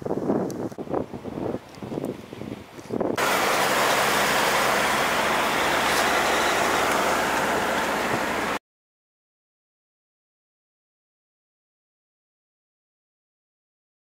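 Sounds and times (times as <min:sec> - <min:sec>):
wind and road noise: 0:00.0 - 0:08.6.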